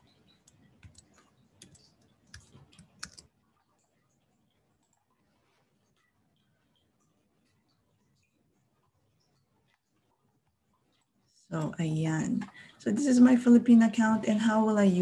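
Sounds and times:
computer keyboard keystrokes: 0.4s - 3.3s.

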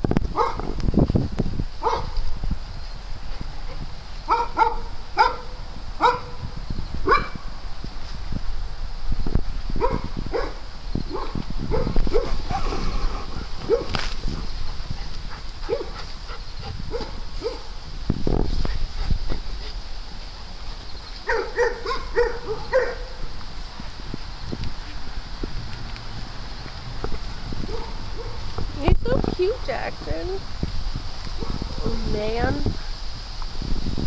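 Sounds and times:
dogs barking: 0.4s - 0.7s, 1.8s - 2.2s, 4.3s - 6.4s, 7.0s - 7.4s, 9.8s - 17.8s, 21.2s - 23.3s, 27.6s - 28.5s.

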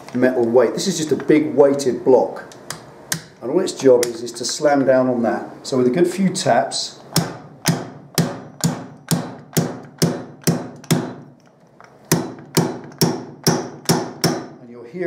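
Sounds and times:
slide hammer metal impacts: 7.1s - 11.3s, 12.0s - 14.6s.

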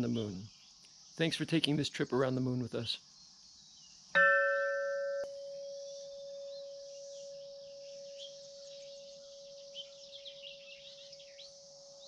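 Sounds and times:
birds chirping: 0.0s - 12.0s
wind chime ringing: 4.2s - 11.5s.

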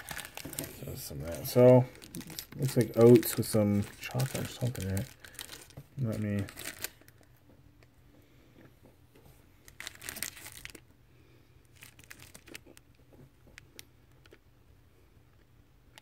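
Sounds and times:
grain bar crackling as broken: 0.0s - 7.1s.

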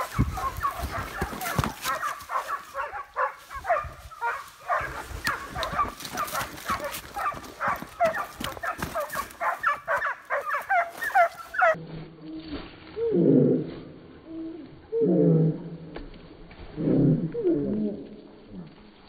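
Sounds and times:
hounds yelping and baying: 0.0s - 11.8s.

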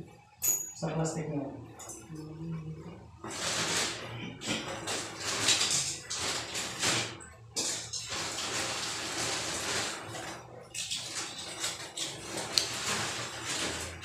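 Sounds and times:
sponge scrubbing glass: 7.8s - 14.0s.

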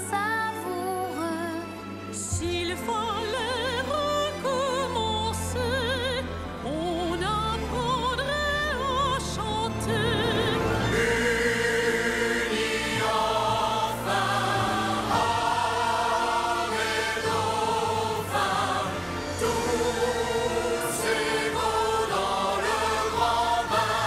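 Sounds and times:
orchestra playing: 1.1s - 24.0s
choir singing: 6.9s - 24.0s.

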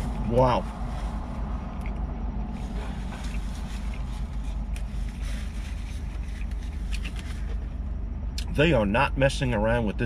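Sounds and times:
low car cabin hum: 0.0s - 10.0s
paper napkin rustling: 2.6s - 7.6s.

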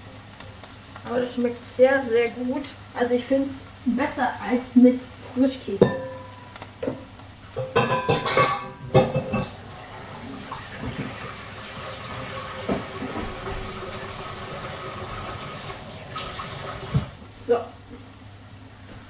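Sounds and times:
kitchen tap running: 0.0s - 17.5s
kitchen utensils and dishes clattering: 5.7s - 7.0s, 7.6s - 17.2s.

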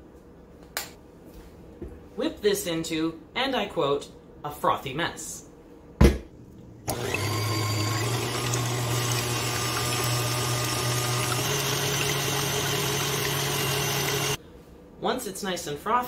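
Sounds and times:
stand mixer motor humming: 6.8s - 14.4s.

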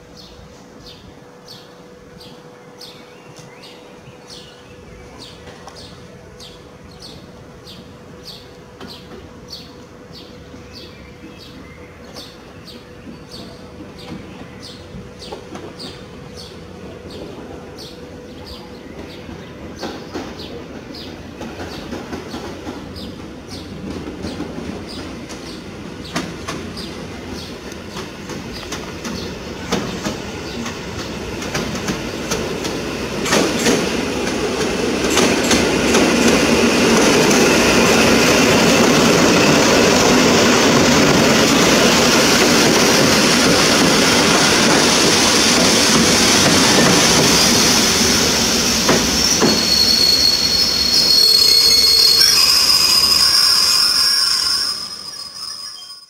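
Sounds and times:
train rolling noise: 0.0s - 56.0s
train wheels clicking over rail joints: 19.0s - 54.3s.

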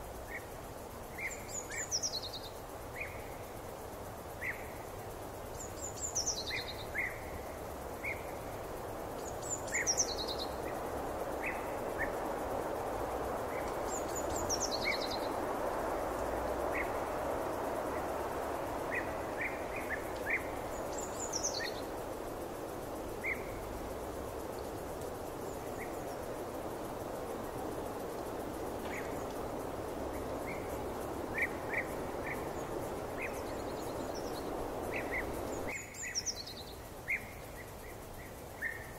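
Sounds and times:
soft rushing background noise: 0.0s - 38.9s
birdsong: 23.0s - 37.3s.

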